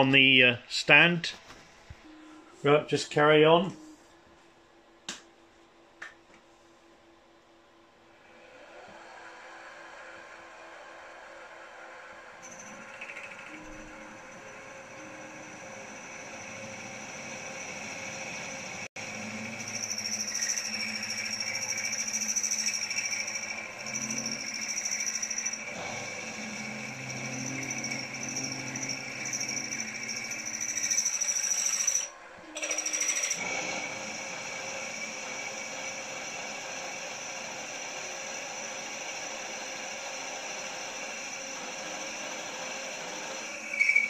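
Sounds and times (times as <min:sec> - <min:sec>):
milling machine motor whine: 0:08.2 - 0:44.0
drill cutting metal rumble: 0:09.7 - 0:44.0.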